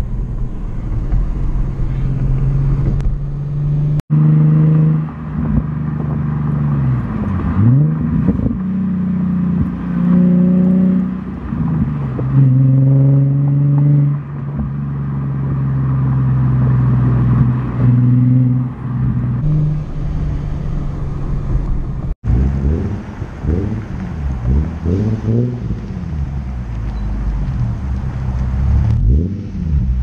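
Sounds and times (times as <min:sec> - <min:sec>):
engine revving blips: 0:17.4 - 0:30.0
low exhaust drone: 0:18.7 - 0:30.0.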